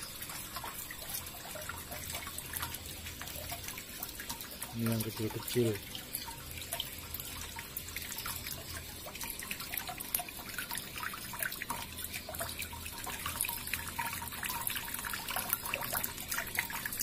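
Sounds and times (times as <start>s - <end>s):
water trickling and dripping: 0.0s - 17.0s.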